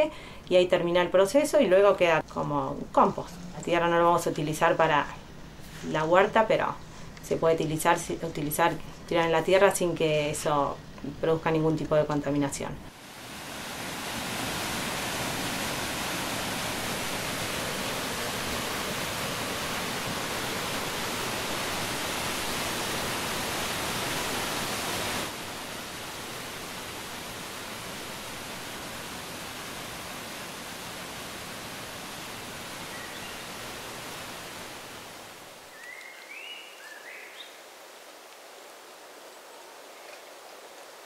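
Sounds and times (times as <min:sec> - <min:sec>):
river rushing over rapids: 0:12.9 - 0:36.1.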